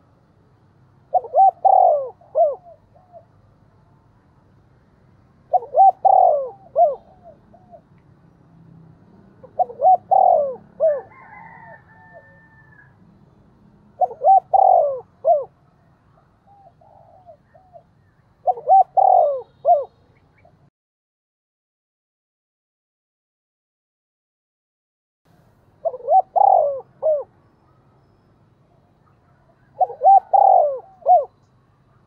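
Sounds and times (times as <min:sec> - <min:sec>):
dove cooing: 0:01.1 - 0:03.4, 0:05.5 - 0:07.9, 0:09.2 - 0:12.9, 0:13.9 - 0:20.7, 0:25.8 - 0:27.5, 0:29.0 - 0:32.0.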